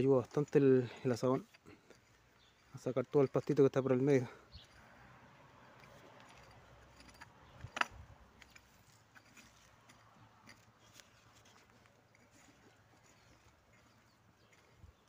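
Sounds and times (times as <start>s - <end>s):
garden hoe scraping soil: 8.4s - 14.7s.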